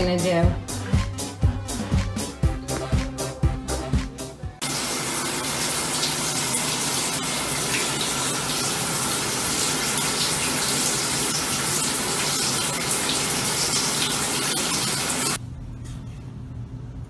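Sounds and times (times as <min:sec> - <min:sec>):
shower spraying on tiled floor: 0:04.6 - 0:15.4.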